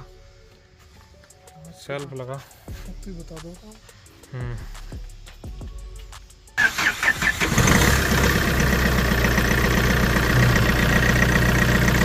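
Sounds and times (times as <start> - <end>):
diesel engine idling: 6.6 - 12.0
starter motor cranking: 6.6 - 12.0.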